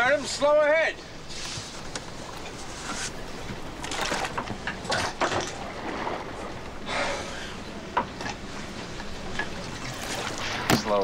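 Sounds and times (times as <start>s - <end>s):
boat engine drone: 0.0s - 11.0s
splashing into sea: 9.5s - 11.0s.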